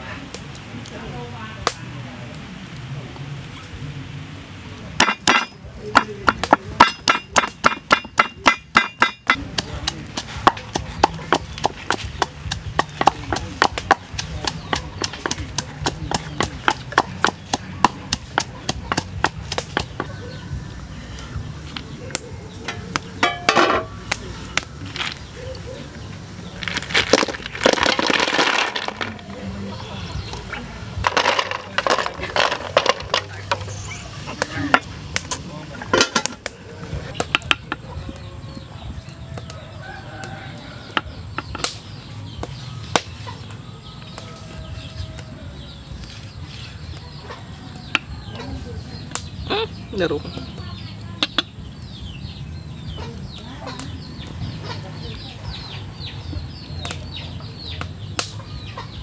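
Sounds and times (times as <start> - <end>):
pestle pounding in wooden mortar: 5.0 - 20.1
chickens clucking: 5.0 - 59.0.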